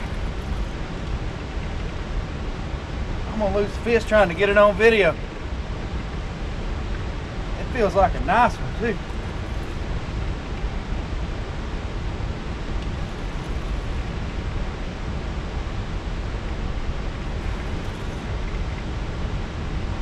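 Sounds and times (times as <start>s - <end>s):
rushing water: 0.0s - 20.0s
wind: 0.0s - 20.0s.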